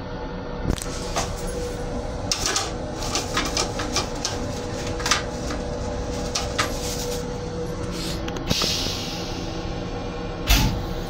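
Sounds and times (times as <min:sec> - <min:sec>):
train low rumble: 0:00.0 - 0:11.0
sharp clicks and rattles: 0:02.3 - 0:06.8.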